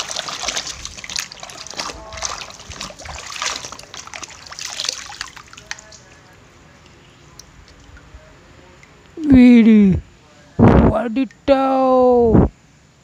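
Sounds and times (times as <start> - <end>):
water sloshing in plastic basin: 0.0 - 8.1.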